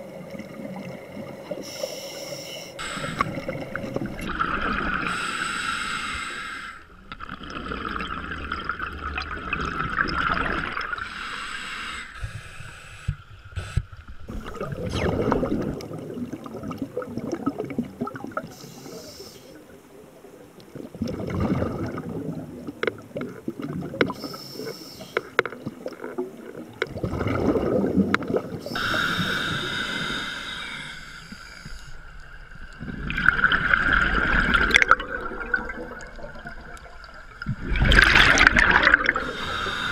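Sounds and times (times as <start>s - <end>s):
regulator hissing inhalations: 1.6s - 3.5s, 5.1s - 6.9s, 11.0s - 13.9s, 18.5s - 19.6s, 24.2s - 25.4s, 28.6s - 32.1s, 39.2s - 39.9s
gurgling exhaled bubbles: 7.2s - 11.0s, 14.3s - 18.5s, 20.7s - 24.2s, 25.7s - 30.2s, 32.8s - 39.9s.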